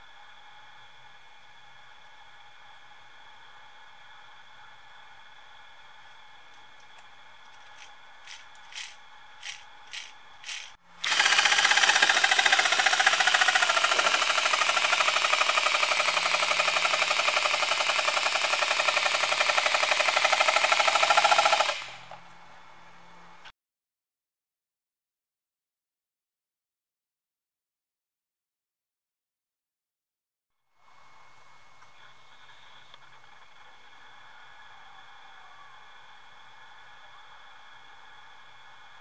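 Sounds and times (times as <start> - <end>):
pneumatic motor chuffing: 7.7 - 22.2.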